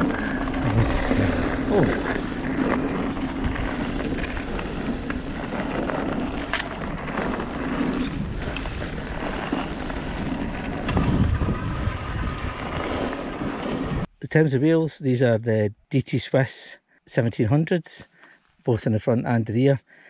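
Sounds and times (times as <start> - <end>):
bike tyres rolling on gravel: 0.0 - 14.1
wind on microphone: 0.0 - 14.1.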